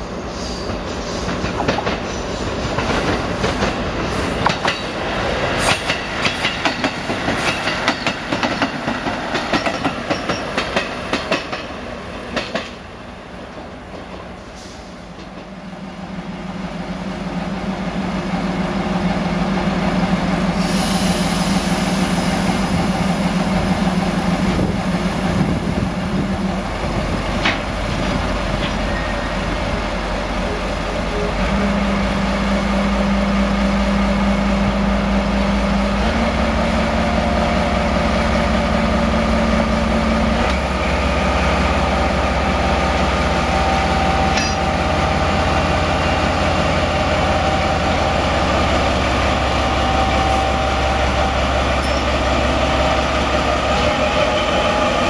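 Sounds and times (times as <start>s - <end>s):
diesel locomotive engine drone: 0.0s - 55.0s
train wheels clacking over rail joints: 1.1s - 5.0s, 5.6s - 12.8s, 27.4s - 28.8s
high hiss: 20.5s - 24.2s.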